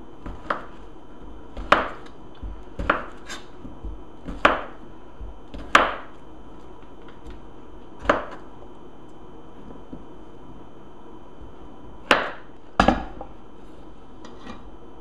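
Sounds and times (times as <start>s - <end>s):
knife chopping on cutting board: 0.2s - 0.8s, 1.5s - 6.2s, 8.0s - 8.4s, 12.0s - 13.3s.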